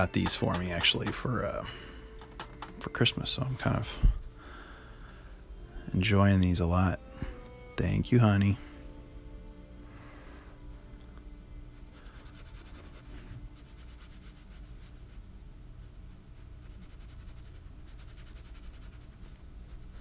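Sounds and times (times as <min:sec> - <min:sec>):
low room hum: 0:00.0 - 0:20.0
paintbrush rubbing on paper: 0:11.9 - 0:15.3, 0:16.0 - 0:20.0.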